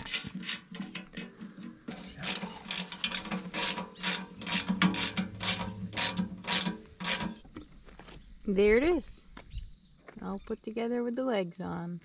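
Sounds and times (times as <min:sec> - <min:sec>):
ratcheting wrenches clicking: 0:01.9 - 0:07.4.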